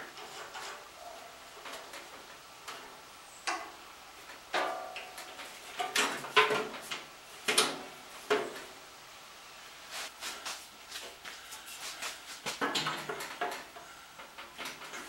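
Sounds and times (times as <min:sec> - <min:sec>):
metal clicks and clunks: 0:01.6 - 0:08.7, 0:12.6 - 0:15.0.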